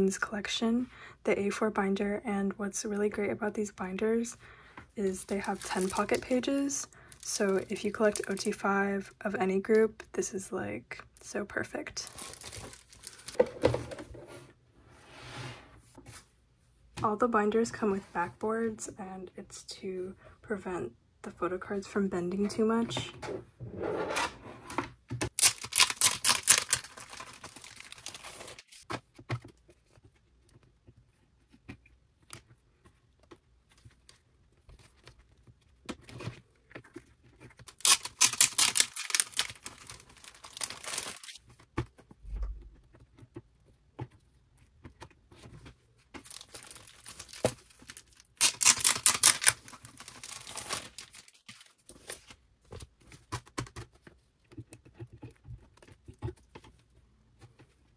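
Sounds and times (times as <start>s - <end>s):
plastic binder pages crinkling: 5.2s - 8.6s, 12.0s - 13.5s, 25.3s - 30.8s, 31.4s - 42.2s, 42.8s - 57.9s.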